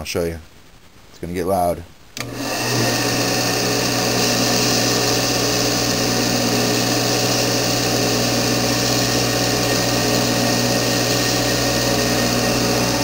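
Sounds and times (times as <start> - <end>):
belt sander grinding metal: 2.2 - 13.0.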